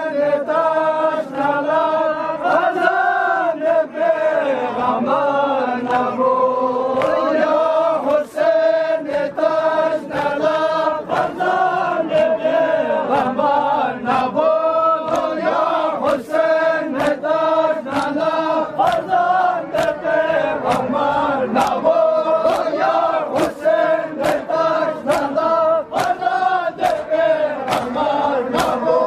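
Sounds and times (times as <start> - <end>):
men chanting: 0.0 - 29.0
hand slaps on chest: 27.7 - 28.0.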